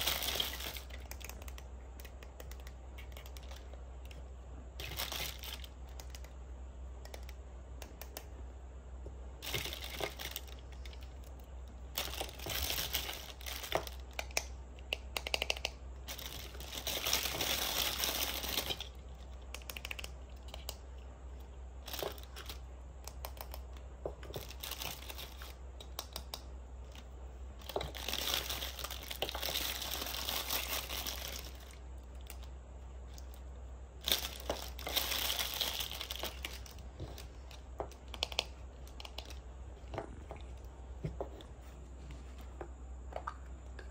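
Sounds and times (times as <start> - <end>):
plastic bag crinkling: 0.0 - 1.5, 4.8 - 5.9, 9.4 - 11.2, 11.9 - 14.0, 16.1 - 19.2, 24.3 - 25.6, 27.6 - 32.5, 34.0 - 39.4
plastic pieces clicking and tapping: 0.1 - 6.4, 12.0 - 20.8, 21.9 - 27.0, 37.5 - 40.5.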